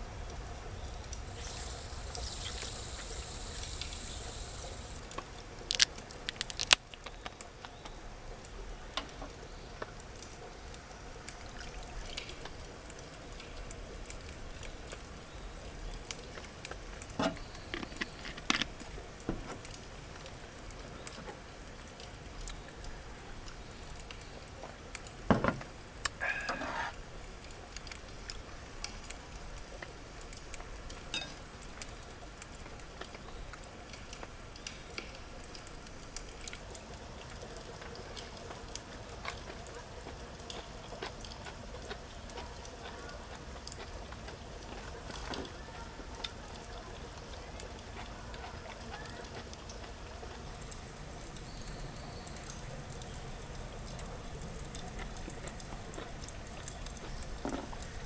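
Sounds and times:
low steady background hiss: 0.0 - 58.0
bottle cap hissing: 1.4 - 4.4.

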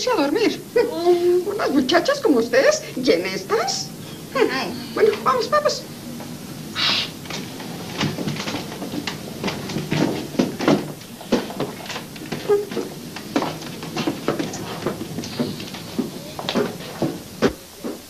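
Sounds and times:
chairs and furniture shifting: 3.6 - 18.0
footsteps on hard floor: 6.2 - 18.0.

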